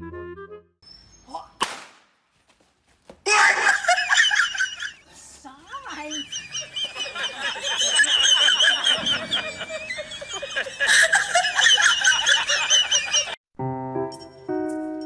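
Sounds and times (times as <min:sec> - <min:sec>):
high-pitched laughing voices: 0:03.3 - 0:05.0, 0:05.7 - 0:13.4.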